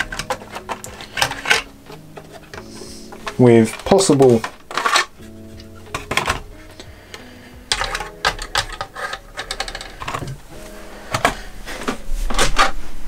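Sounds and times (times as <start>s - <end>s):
plastic shells clicking and rattling: 0.0s - 6.9s, 7.7s - 10.4s.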